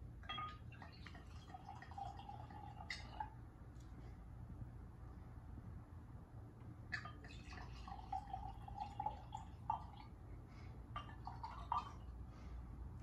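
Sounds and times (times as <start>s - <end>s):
small drips: 0.2s - 4.0s, 6.9s - 12.3s
wine pouring into a glass: 0.3s - 3.3s, 7.0s - 10.1s.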